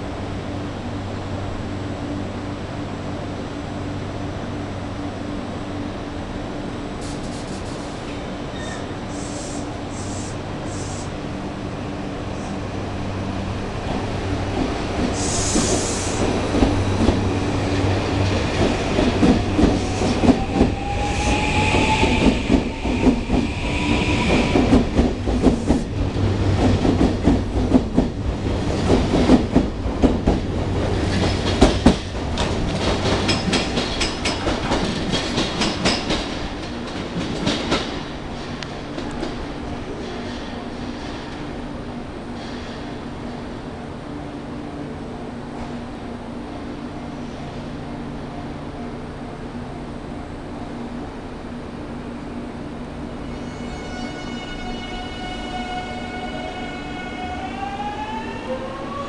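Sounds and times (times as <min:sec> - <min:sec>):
train brake hiss: 0:07.0 - 0:11.2, 0:15.1 - 0:16.2
train wheels clattering on rails: 0:13.9 - 0:41.6.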